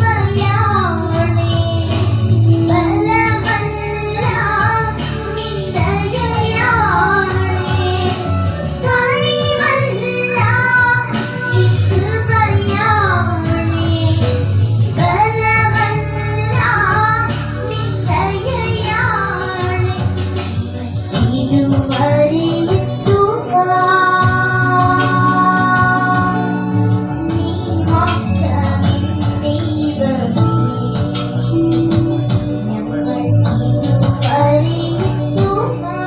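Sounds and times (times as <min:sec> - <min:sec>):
instrumental backing with bass: 0:00.0 - 0:36.0.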